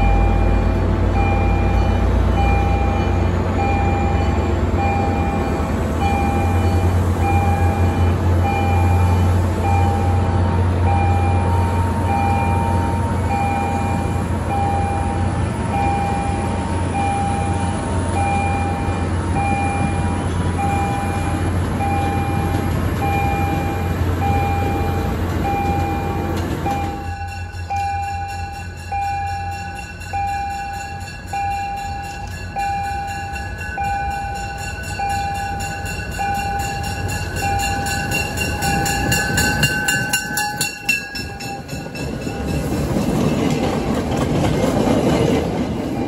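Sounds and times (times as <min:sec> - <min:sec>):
electronic warning beep: 0:00.0 - 0:28.1
train rumbling: 0:00.0 - 0:46.0.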